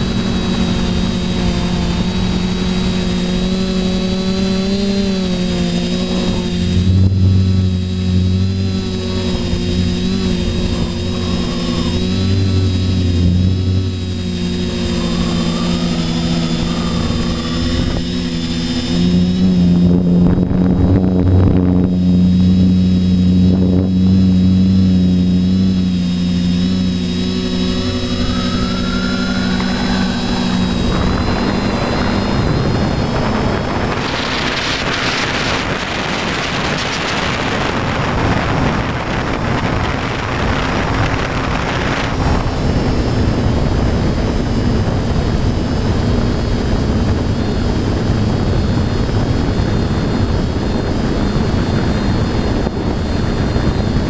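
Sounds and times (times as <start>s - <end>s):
drone motors buzzing hum: 0.0s - 54.0s
rushing air: 25.5s - 42.4s.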